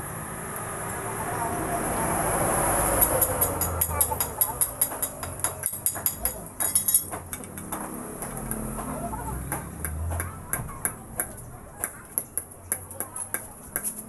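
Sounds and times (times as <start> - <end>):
hammer tapping on steel: 3.0 - 8.9.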